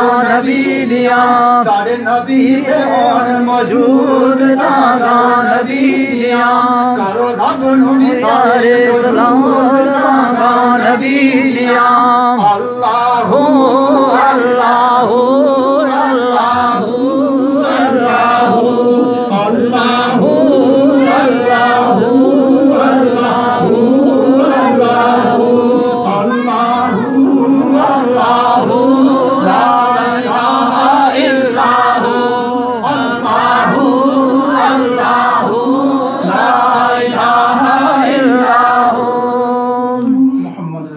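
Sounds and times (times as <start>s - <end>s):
men singing in chorus: 0.0s - 40.7s.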